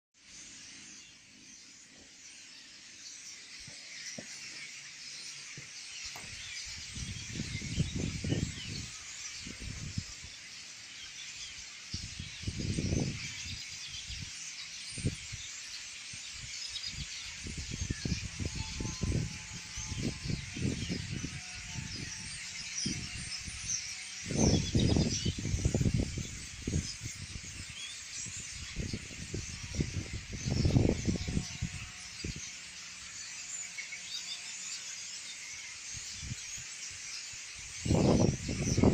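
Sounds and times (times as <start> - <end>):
starlings chattering: 0.2 - 38.9.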